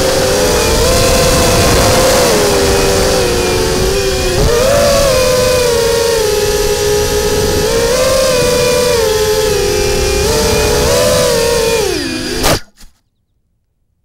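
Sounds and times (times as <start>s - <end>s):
drone propellers whining: 0.0s - 12.8s.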